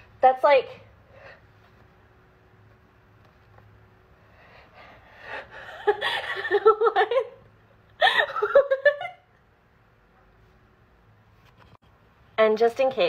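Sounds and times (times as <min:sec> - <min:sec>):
person laughing: 0:05.5 - 0:09.3.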